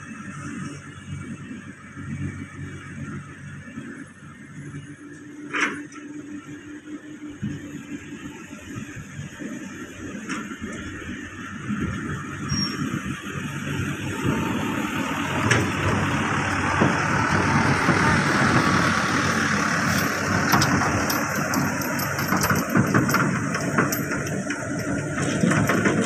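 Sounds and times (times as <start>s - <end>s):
diesel truck driving past: 12.0s - 26.0s
truck body clanking and rattling: 14.0s - 26.0s.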